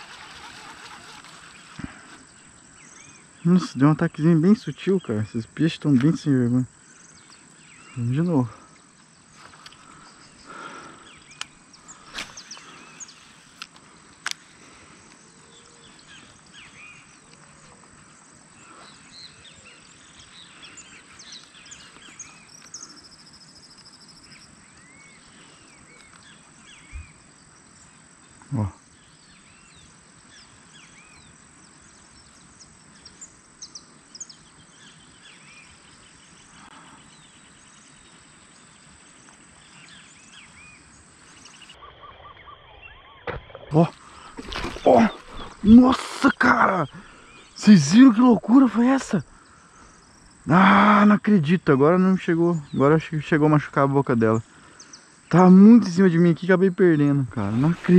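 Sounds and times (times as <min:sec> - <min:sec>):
birds chirping and calling: 0:00.0 - 0:27.9, 0:39.6 - 0:57.9.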